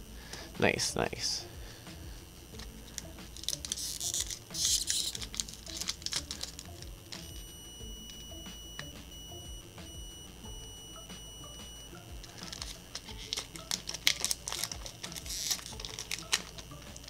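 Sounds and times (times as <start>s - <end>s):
cards clicking: 2.6s - 7.4s, 12.2s - 17.0s
foil wrapper crinkling and tearing: 2.9s - 7.2s, 12.2s - 17.0s
faint high electronic tone: 7.1s - 13.7s.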